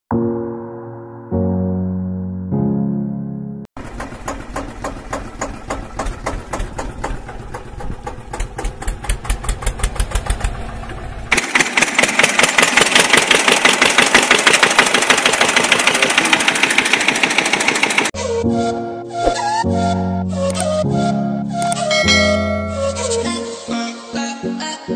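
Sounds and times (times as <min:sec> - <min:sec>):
tractor engine chugging: 0:03.8 - 0:18.2.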